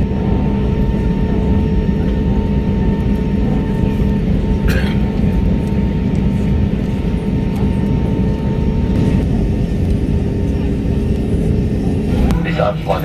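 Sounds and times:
jet engines idling rumble: 0:00.0 - 0:13.0.

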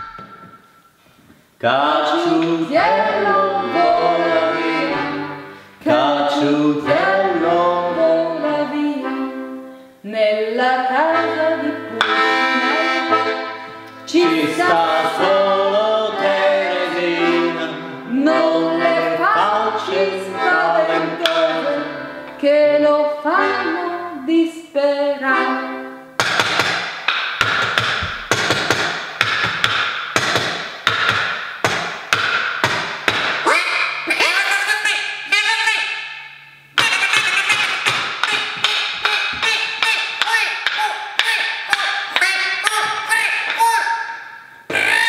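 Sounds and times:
man singing folk song: 0:01.6 - 0:09.0, 0:14.1 - 0:21.9
button accordion: 0:02.1 - 0:09.7, 0:10.8 - 0:24.2, 0:25.2 - 0:26.7, 0:36.8 - 0:43.9.

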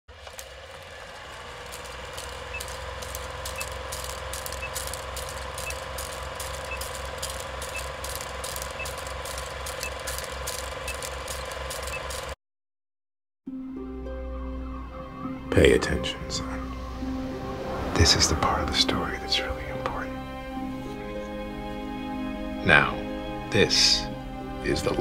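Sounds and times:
film projector whirring: 0:00.1 - 0:12.4
projector clicks: 0:00.2 - 0:12.4.

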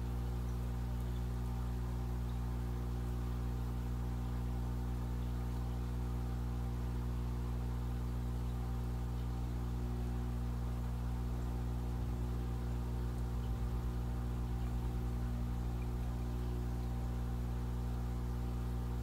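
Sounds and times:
air pump humming: 0:00.0 - 0:19.0
air stones bubbling hiss: 0:11.7 - 0:19.0.

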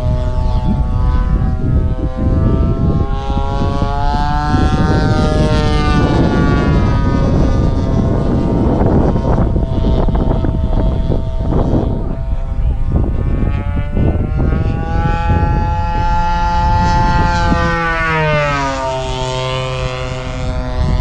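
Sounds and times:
model airplane engine and propeller: 0:00.0 - 0:21.0
steady low rumble: 0:00.0 - 0:21.0.

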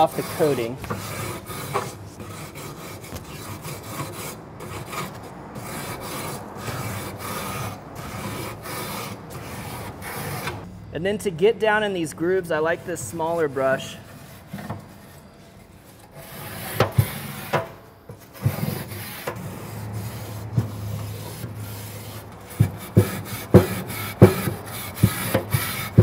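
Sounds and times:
grill brush rasping on metal: 0:00.0 - 0:10.6, 0:12.3 - 0:26.0.

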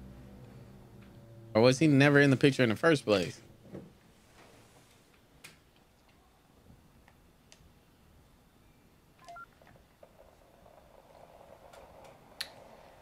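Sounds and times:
baby monitor beeping: 0:09.2 - 0:09.5.

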